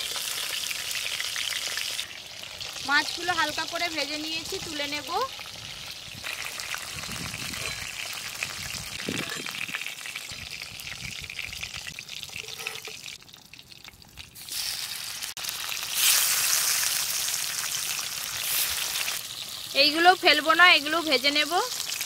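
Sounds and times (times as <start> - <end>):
fish sizzling in hot oil: 0.0 - 22.0
metal spatula lifting fried fish: 5.7 - 10.6, 12.2 - 13.2.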